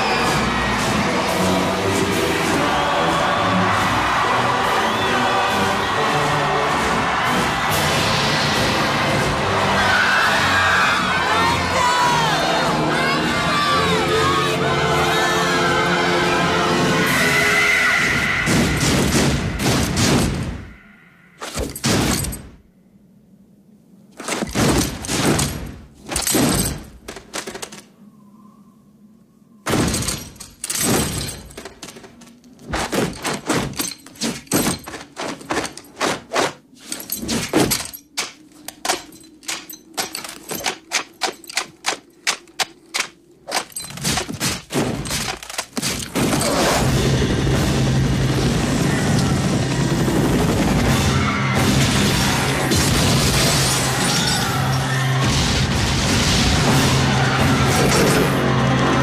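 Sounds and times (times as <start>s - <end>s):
continuous loud noise: 29.7s - 59.0s.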